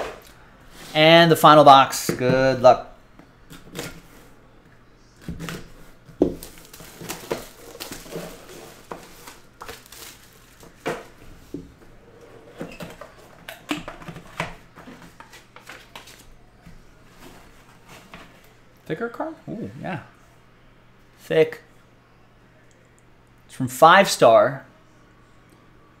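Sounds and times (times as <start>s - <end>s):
plastic wrap tearing and crinkling: 6.3s - 11.1s.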